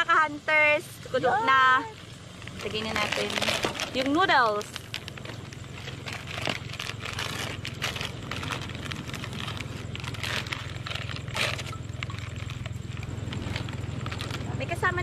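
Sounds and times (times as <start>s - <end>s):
steady low hum: 0.0s - 15.0s
plastic packets crinkling: 2.3s - 15.0s.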